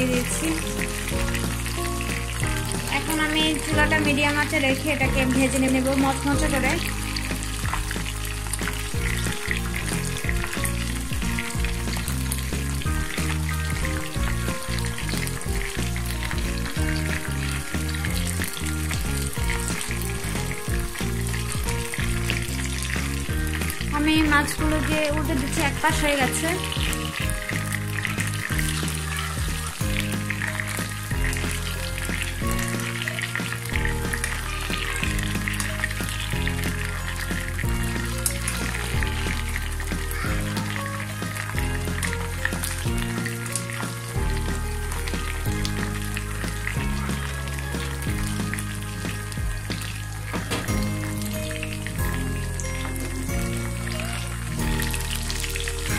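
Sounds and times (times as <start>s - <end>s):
fish sizzling in hot oil: 0.0s - 55.9s
slow low background music: 0.0s - 55.9s.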